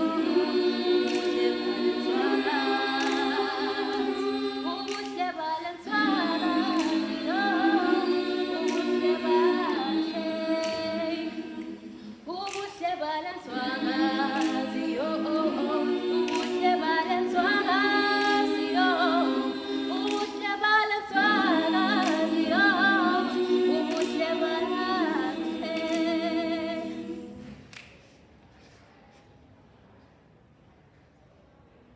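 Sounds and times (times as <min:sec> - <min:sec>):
a cappella group singing: 0:00.0 - 0:28.2.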